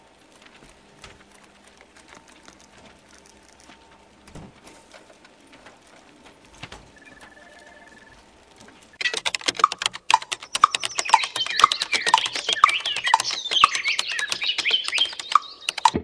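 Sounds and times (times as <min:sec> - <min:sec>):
birds chirping: 0:00.0 - 0:16.0
light ticking: 0:05.1 - 0:16.0
rapid keyboard typing: 0:05.8 - 0:16.0.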